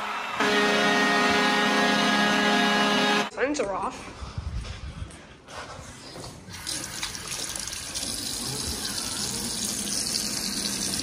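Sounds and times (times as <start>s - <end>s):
faucet running into sink: 6.6s - 11.0s.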